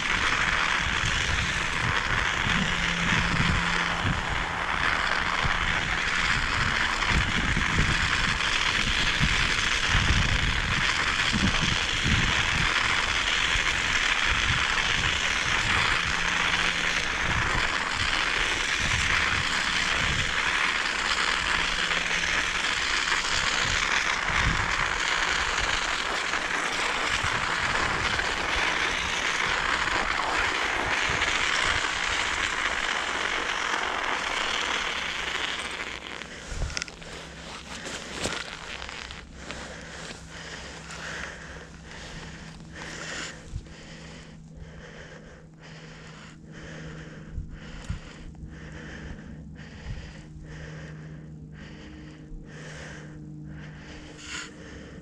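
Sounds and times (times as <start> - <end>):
wind buffeting microphone: 0.0 - 44.0
steady hiss: 0.0 - 44.4.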